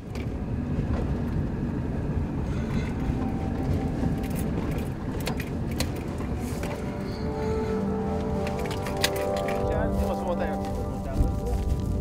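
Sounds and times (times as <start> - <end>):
engine and tyre rumble: 0.0 - 12.0
sharp clicks and rattles: 2.4 - 6.9, 8.4 - 9.8.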